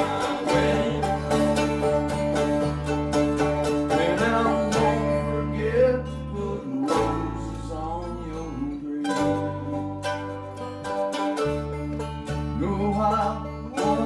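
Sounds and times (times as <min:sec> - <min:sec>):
man singing: 0:00.0 - 0:01.6, 0:03.9 - 0:10.1, 0:12.5 - 0:14.0
acoustic guitars strumming: 0:00.0 - 0:14.0.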